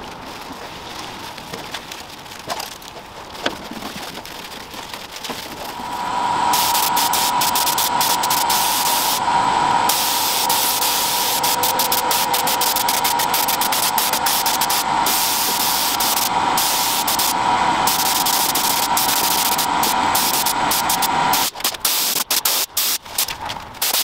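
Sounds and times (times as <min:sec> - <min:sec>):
spray gun hissing: 0:05.8 - 0:24.0.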